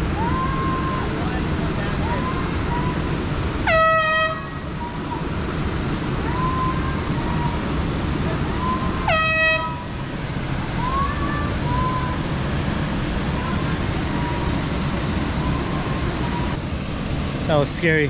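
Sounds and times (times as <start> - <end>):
steady low rush: 0.0 - 18.0
air horn blasts: 3.6 - 4.6, 9.0 - 9.9.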